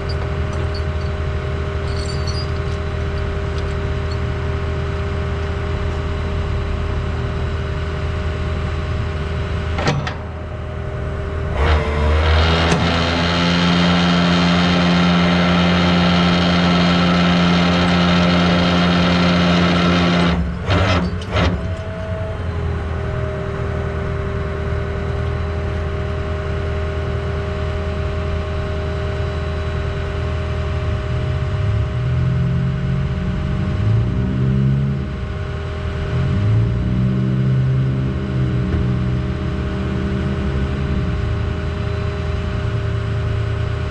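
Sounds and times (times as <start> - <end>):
truck engine idling and revving: 0.0 - 43.9.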